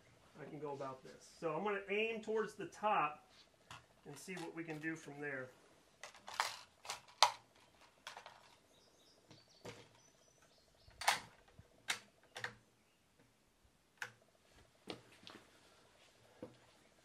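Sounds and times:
rifle clicks and knocks: 0:11.0 - 0:12.6.

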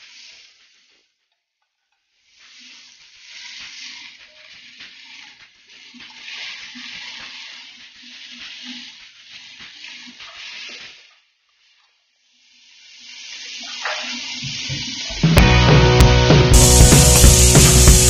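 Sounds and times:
food sizzling in hot oil: 0:00.0 - 0:01.2, 0:02.0 - 0:18.0
spatula stirring in a wok: 0:00.0 - 0:15.4.

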